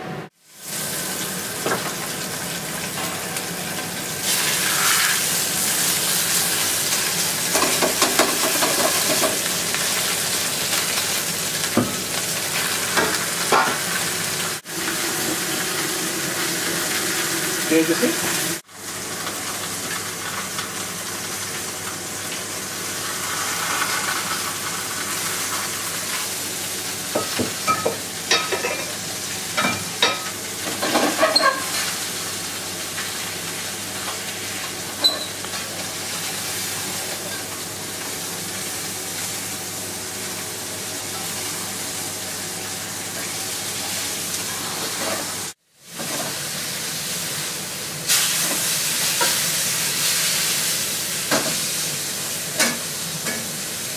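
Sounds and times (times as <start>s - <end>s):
food sizzling in a pan: 0.3s - 53.9s
utensil clinking against pans: 27.2s - 29.0s, 29.6s - 31.9s.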